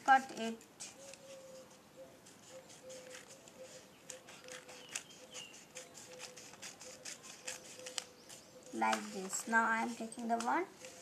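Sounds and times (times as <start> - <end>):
scissors snipping paper: 2.8 - 11.0.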